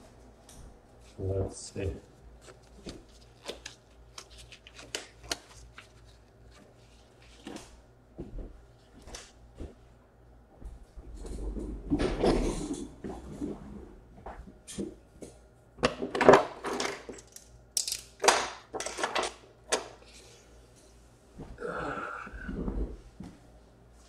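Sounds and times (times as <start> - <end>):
rustling handling noise: 0.9 - 7.8.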